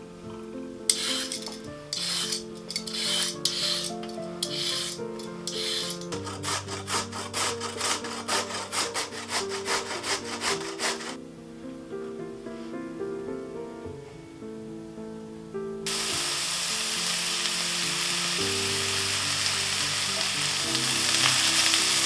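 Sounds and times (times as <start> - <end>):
carrot grating on metal grater: 0.9 - 11.2
carrot peeling scrapes: 0.9 - 11.2.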